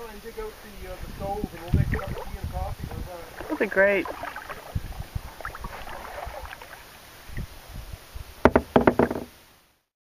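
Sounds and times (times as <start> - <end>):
faint water sounds: 0.0 - 9.8
paddle and hull knocking: 1.5 - 6.8, 8.4 - 9.4
sharp loud knocks: 8.4 - 9.3.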